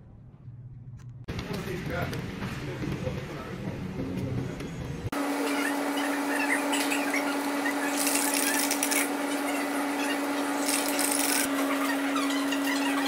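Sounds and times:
laundry machines humming: 1.2 - 13.0.

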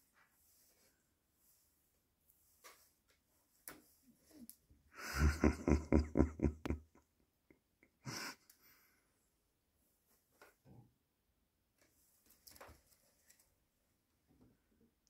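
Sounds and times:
person stifled breathy laughter: 5.0 - 7.0, 7.9 - 8.4.

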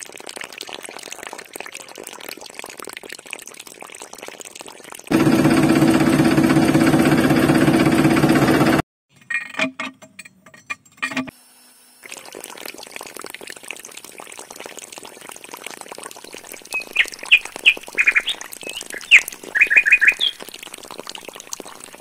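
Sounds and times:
motor hum: 5.1 - 8.8.

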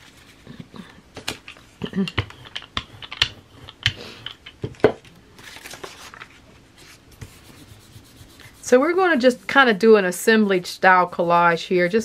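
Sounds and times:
clicks and taps: 1.2 - 5.1
paper rustling: 5.4 - 7.6.

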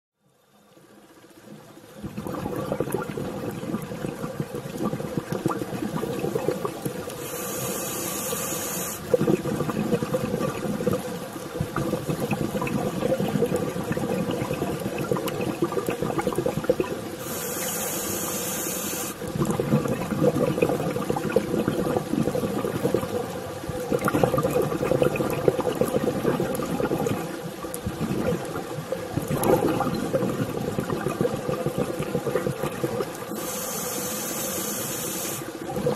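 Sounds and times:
exhaust bubbles gurgling underwater: 0.6 - 35.9
regulator hissing inhalations: 7.1 - 9.1, 17.2 - 19.2, 33.3 - 35.6.

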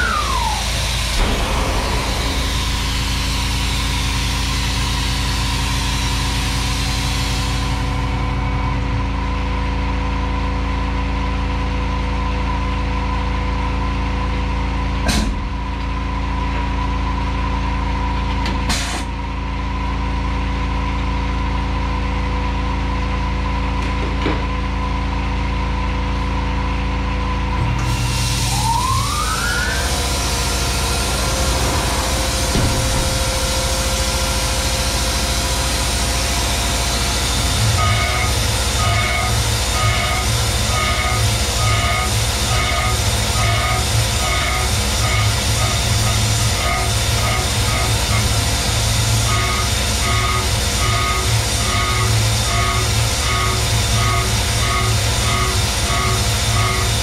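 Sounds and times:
spindle spinning up with whine: 0.0 - 9.0
machine hum: 0.0 - 14.9, 25.0 - 57.0.

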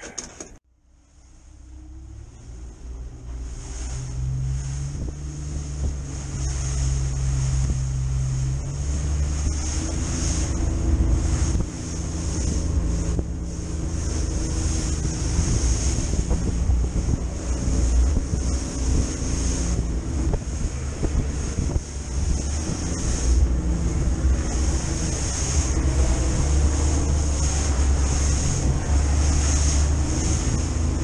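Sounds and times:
outboard motor running: 1.6 - 31.0
water slapping against hull: 3.1 - 31.0
wind buffeting microphone: 3.1 - 31.0.

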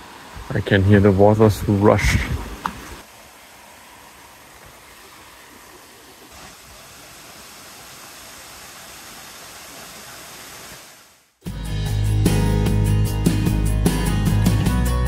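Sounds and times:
waterfall rushing: 0.0 - 11.4.

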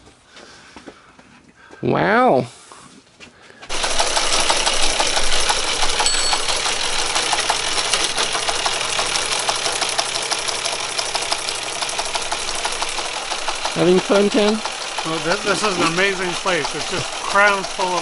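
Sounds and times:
low motor hum: 3.7 - 18.0
teletype printer clattering: 3.7 - 18.0.

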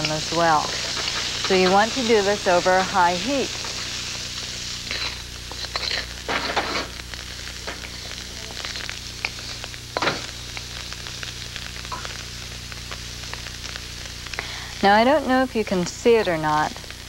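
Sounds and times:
wooden spatula scraping a wok: 0.0 - 2.3, 4.6 - 7.0
vegetables sizzling in oil: 0.0 - 17.0.

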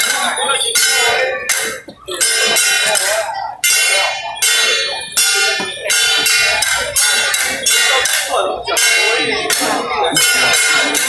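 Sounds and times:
bell-like metallic percussion: 0.0 - 11.0.

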